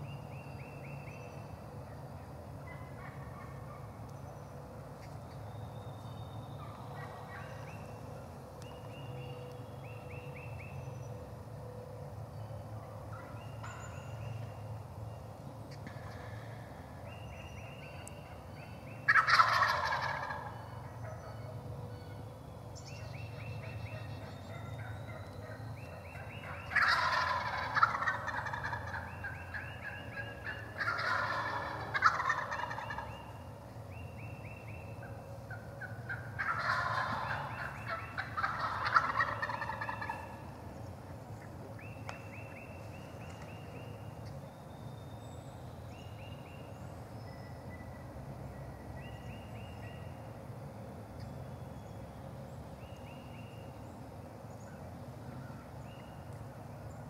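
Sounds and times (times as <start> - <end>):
turkeys gobbling: 2.6 - 3.9, 6.6 - 7.9, 18.0 - 21.6, 23.4 - 33.6, 34.5 - 43.8
turkey yelping: 19.1 - 21.5, 23.8 - 33.4, 35.5 - 40.4.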